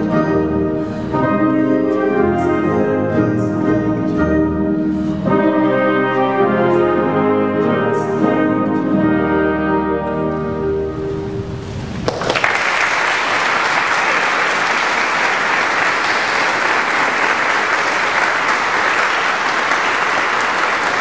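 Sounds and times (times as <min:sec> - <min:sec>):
orchestra chord: 0:00.0 - 0:11.8
audience applause: 0:11.9 - 0:21.0.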